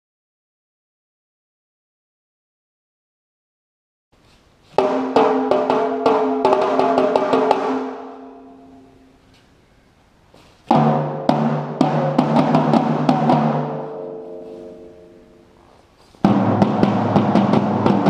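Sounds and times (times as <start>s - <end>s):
tuned drums ringing: 4.8s - 9.0s, 10.7s - 15.6s.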